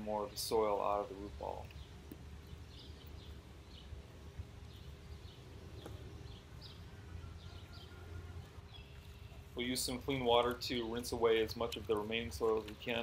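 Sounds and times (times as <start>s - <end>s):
low steady hum: 0.0s - 13.0s
faint bird chirps: 4.6s - 9.5s.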